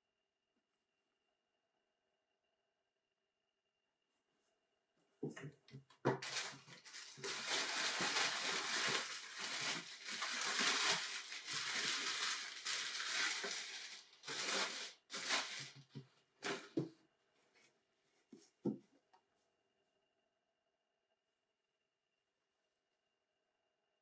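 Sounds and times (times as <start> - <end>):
packing paper rustling and crinkling: 6.1 - 16.8.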